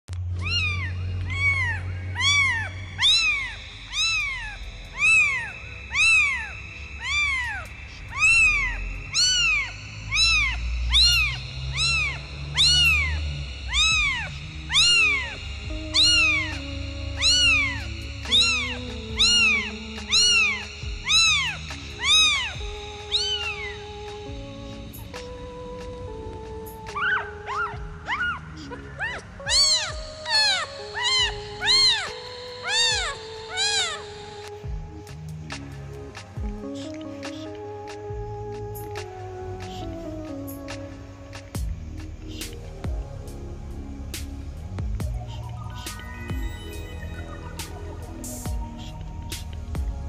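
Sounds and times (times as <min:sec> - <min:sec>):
low hum: 0:00.1 - 0:36.6, 0:41.3 - 0:50.0
quiet background music: 0:00.1 - 0:50.0
kitten meowing: 0:00.3 - 0:23.8, 0:27.0 - 0:34.1.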